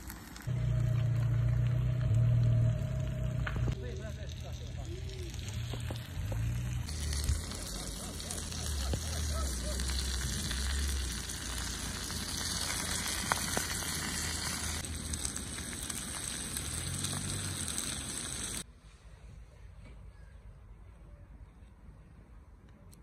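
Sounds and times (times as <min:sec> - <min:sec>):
fish sizzling in a pan: 0:04.5 - 0:18.6.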